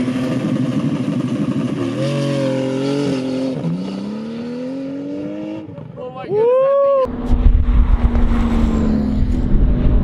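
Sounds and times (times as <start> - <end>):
sports car accelerating hard: 1.9 - 5.9, 7.1 - 10.0.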